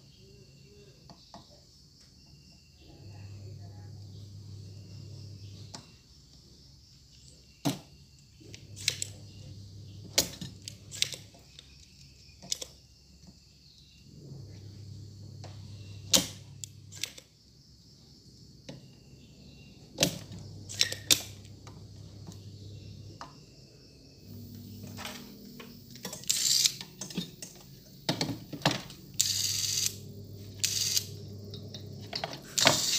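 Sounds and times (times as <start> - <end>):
low hum: 8.4 - 11.0, 13.9 - 17.0, 18.9 - 32.6
desoldering pump snapping: 8.5 - 9.2, 10.1 - 12.7, 20.0 - 22.4.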